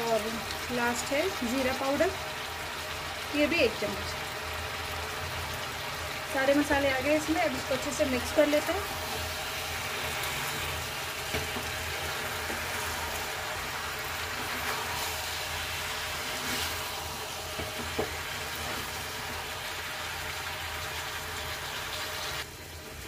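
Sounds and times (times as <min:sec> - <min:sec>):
vegetables sizzling in oil: 0:00.0 - 0:23.0
spatula stirring in pan: 0:07.5 - 0:20.5.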